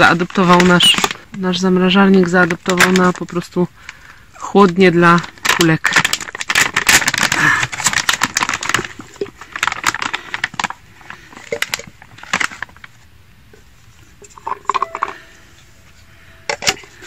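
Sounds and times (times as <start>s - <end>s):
plastic bag crackling: 0.0s - 13.1s.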